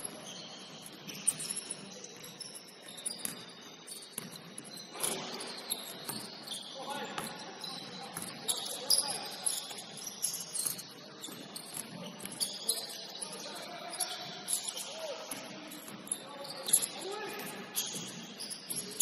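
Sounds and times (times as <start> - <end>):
sneakers squeaking on court: 0.0 - 19.0
players' voices: 10.8 - 17.7.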